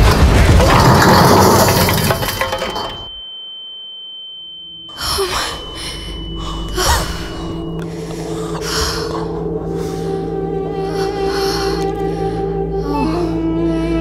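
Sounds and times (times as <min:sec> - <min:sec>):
high ringing tone: 0:01.5 - 0:09.6.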